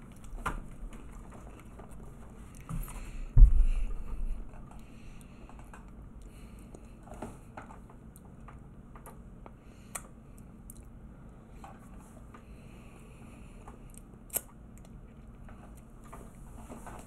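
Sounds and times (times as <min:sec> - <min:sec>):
person chewing food: 0:00.0 - 0:03.2, 0:12.8 - 0:16.4
heavy low thump: 0:03.2 - 0:04.5.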